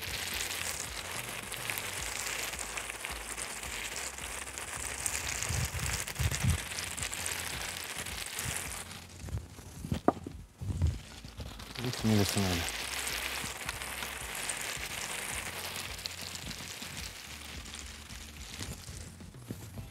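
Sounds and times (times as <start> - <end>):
food sizzling in oil: 0.0 - 9.2, 11.1 - 19.1
soft low thumps: 8.5 - 11.8, 15.4 - 19.9.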